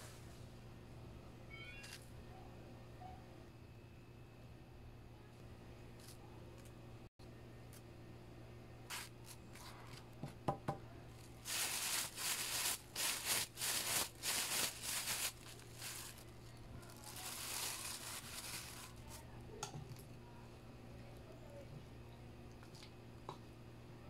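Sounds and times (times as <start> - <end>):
plastic bag crinkling: 8.9 - 9.4, 11.2 - 20.0.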